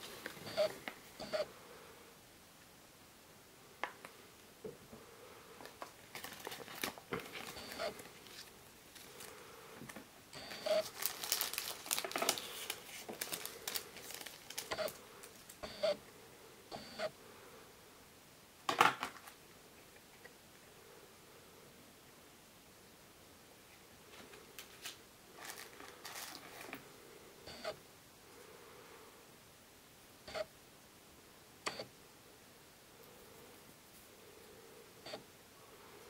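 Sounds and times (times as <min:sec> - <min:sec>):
plastic bag crinkling: 0:05.8 - 0:09.4, 0:10.8 - 0:15.6, 0:24.6 - 0:26.8
paper cards being handled: 0:10.8 - 0:15.6.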